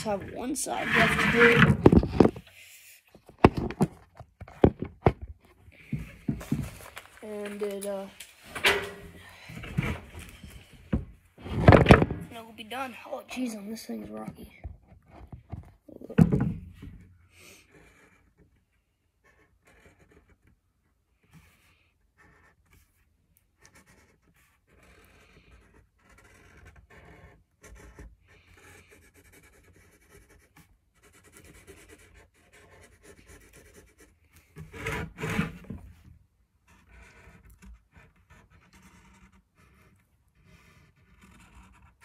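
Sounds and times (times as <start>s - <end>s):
marker scratching and squeaking: 19.2s - 20.5s, 23.6s - 34.2s, 36.7s - 42.0s.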